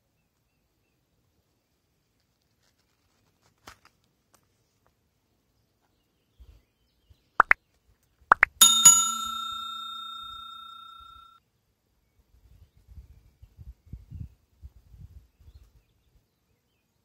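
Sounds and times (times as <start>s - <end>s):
bell-like ding: 8.6s - 11.4s.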